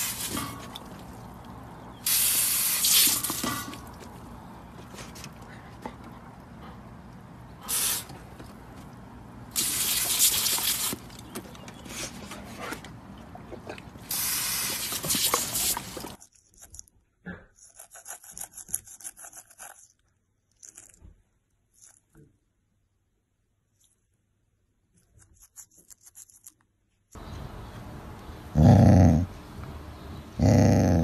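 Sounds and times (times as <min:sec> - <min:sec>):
water spraying in bursts: 0:00.0 - 0:04.5, 0:07.6 - 0:08.4, 0:09.4 - 0:12.2, 0:14.0 - 0:16.2
toothbrush scrubbing teeth: 0:17.5 - 0:21.0, 0:25.0 - 0:26.6.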